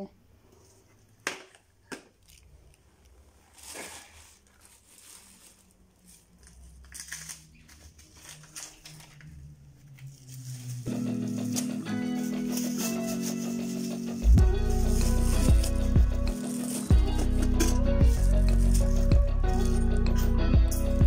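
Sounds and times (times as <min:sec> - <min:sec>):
music: 0:10.4 - 0:21.0.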